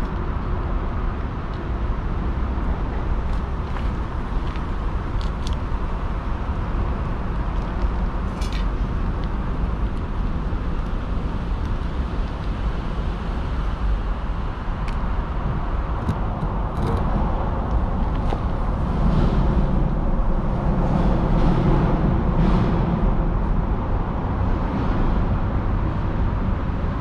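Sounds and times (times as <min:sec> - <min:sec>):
city traffic rumble: 0:00.0 - 0:27.0.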